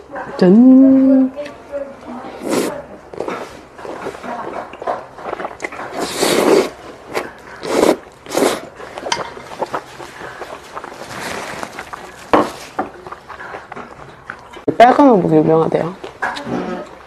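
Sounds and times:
noodles being slurped: 0:02.4 - 0:14.0
chewing: 0:02.5 - 0:14.7.

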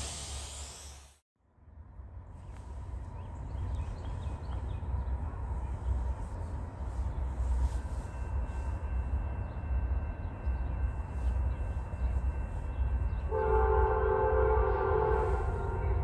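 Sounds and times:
train air horn chord: 0:13.2 - 0:16.0.

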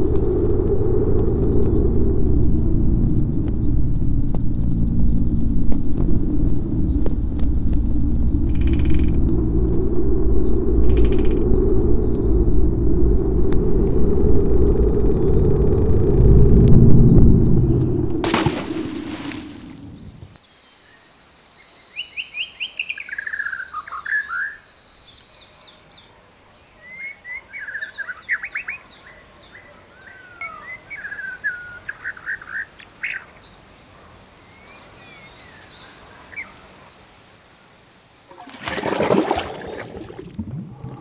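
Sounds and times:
rushing splash of water: 0:18.2 - 0:20.0, 0:38.3 - 0:41.0.

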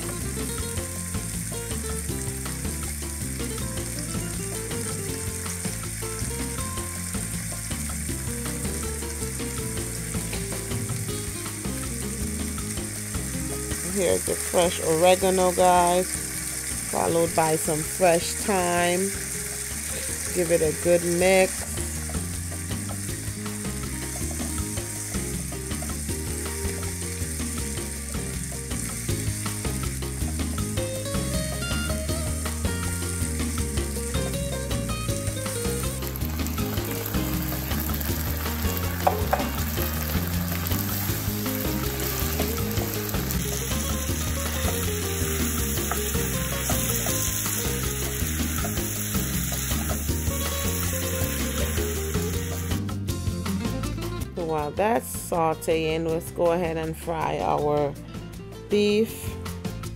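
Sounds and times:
vegetables sizzling in a frying pan: 0:00.0 - 0:53.0
background music with bass line: 0:00.0 - 0:59.9
wooden spoon stirring: 0:38.4 - 0:41.1.

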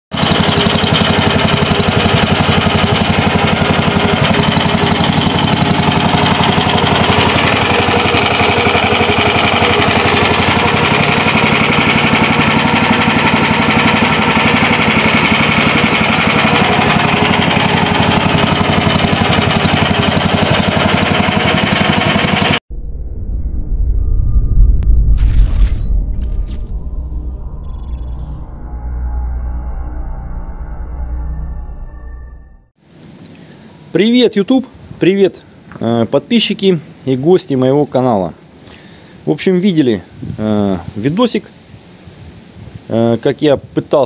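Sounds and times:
single-cylinder petrol engine running: 0:00.1 - 0:22.6.

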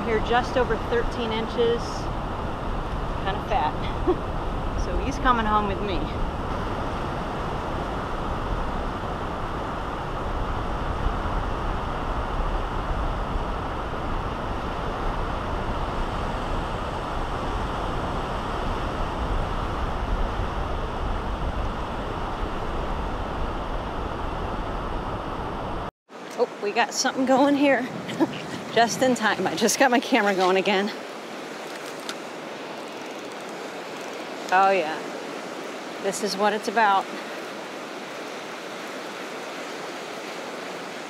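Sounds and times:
wind rumbling on microphone: 0:00.0 - 0:41.0
surf washing up on beach: 0:26.2 - 0:41.0.

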